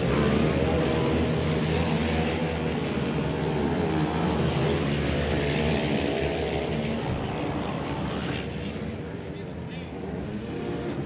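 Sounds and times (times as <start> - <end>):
kart engines revving: 0.0 - 11.0.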